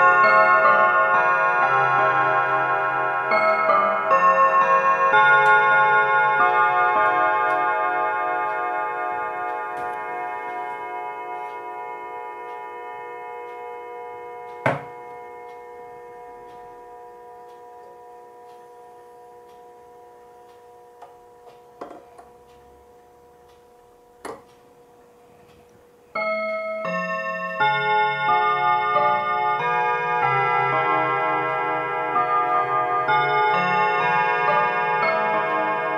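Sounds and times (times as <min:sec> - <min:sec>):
clock chime rods ringing: 0:00.0 - 0:35.9
clock hand clicking: 0:16.4 - 0:26.9.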